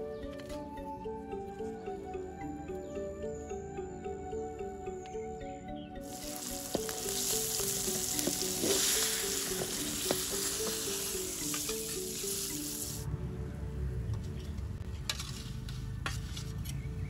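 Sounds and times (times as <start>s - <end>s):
fish sizzling in hot oil: 6.0s - 13.0s.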